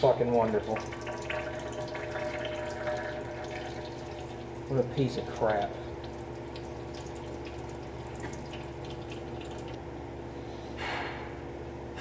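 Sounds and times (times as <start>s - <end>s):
steady background hum: 0.0s - 12.0s
oil dripping into pan: 0.4s - 9.9s.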